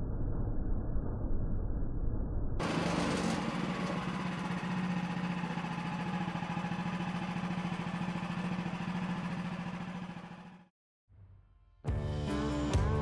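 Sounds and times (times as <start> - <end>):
sawmill gas engine running: 2.6 - 10.7.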